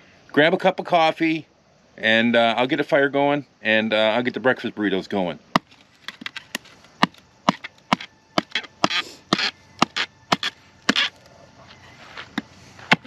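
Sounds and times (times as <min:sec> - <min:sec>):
stick knocking on knife spine: 0:05.6 - 0:11.1.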